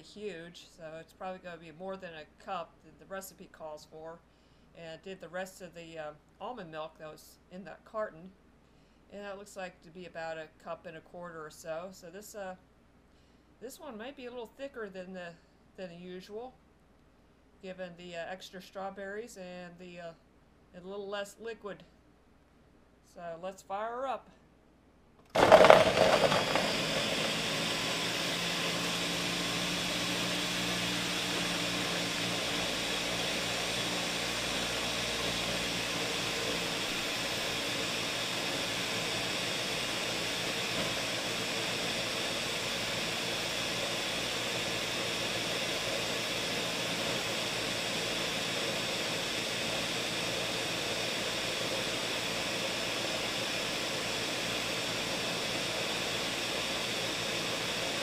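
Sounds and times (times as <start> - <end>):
blender whirring: 25.3 - 58.0.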